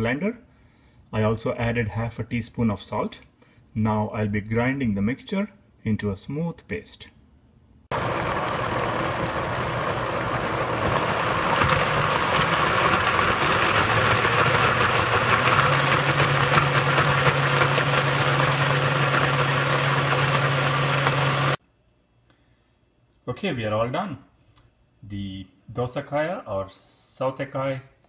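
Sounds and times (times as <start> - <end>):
blender motor running: 7.9 - 21.6.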